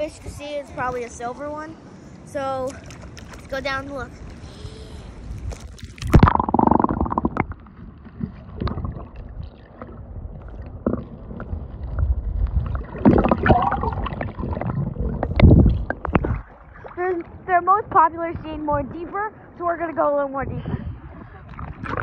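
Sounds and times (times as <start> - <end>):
underwater water sloshing: 5.1 - 22.0
underwater clicks: 5.4 - 12.0, 12.6 - 16.6.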